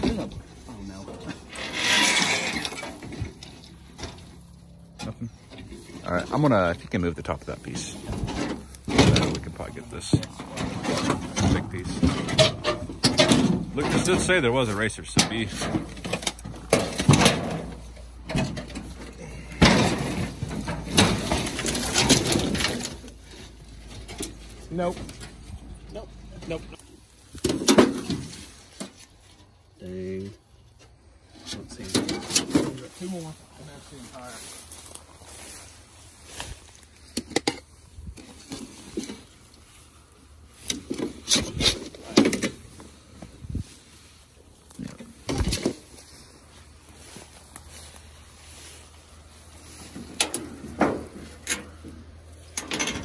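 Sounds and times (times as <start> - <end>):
metal roofing sheets clanking: 0.0 - 26.8, 27.4 - 29.0, 31.4 - 33.4, 49.6 - 53.0
scraping through weeds and leaves: 0.0 - 53.0
rustling in brush: 32.8 - 41.8, 42.6 - 52.5.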